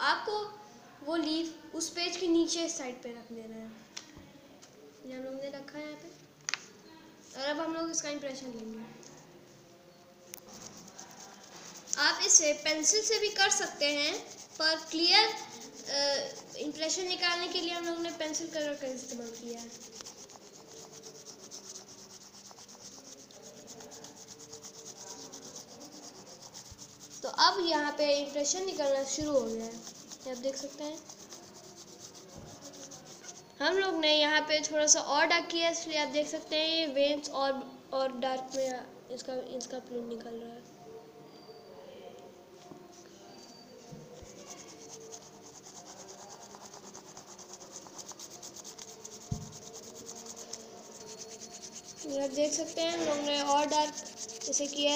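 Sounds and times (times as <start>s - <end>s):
pencil scratching on paper: 10.4s - 33.6s, 44.1s - 54.9s.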